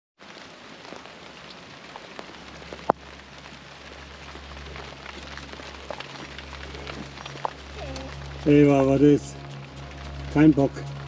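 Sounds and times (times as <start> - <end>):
steady rain falling: 0.2 - 11.0
low rumble: 2.3 - 11.0.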